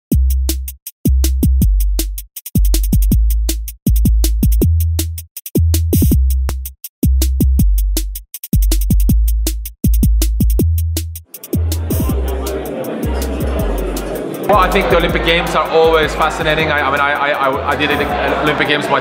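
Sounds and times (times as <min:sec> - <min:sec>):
electronic dance music: 0:11.2 - 0:19.0.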